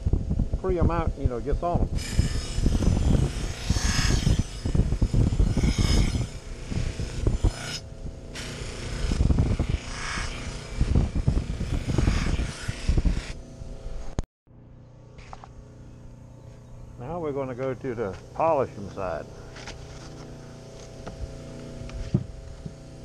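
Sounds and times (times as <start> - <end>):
bench buffer running: 1.8 - 23.0
knife blade scraping buffing wheel: 2.0 - 13.4.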